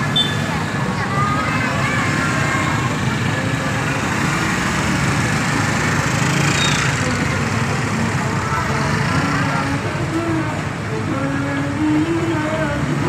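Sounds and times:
motor scooters engine drone: 0:00.0 - 0:13.0.

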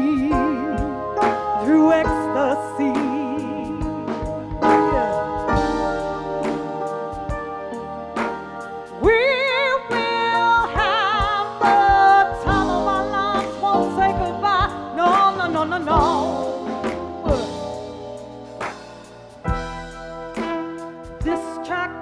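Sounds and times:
woman singing with vibrato: 0:00.0 - 0:05.6, 0:09.0 - 0:17.8, 0:21.2 - 0:22.0
live band playing: 0:00.0 - 0:22.0.

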